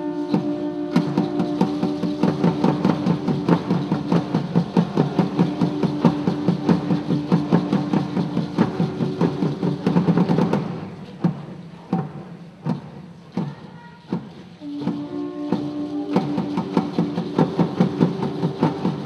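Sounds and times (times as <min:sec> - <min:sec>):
conch shells droning: 0:00.0 - 0:07.4, 0:14.6 - 0:19.0
rapid drumming: 0:00.0 - 0:19.0.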